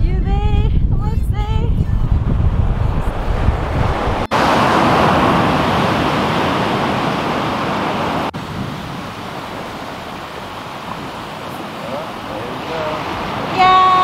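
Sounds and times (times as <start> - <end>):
wind rumble on microphone: 0.0 - 14.0
surf washing on beach: 2.1 - 14.0.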